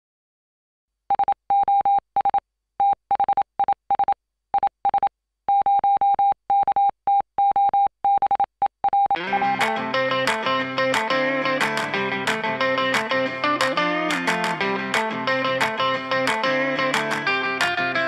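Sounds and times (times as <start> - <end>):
guitar music: 9.2 - 18.0.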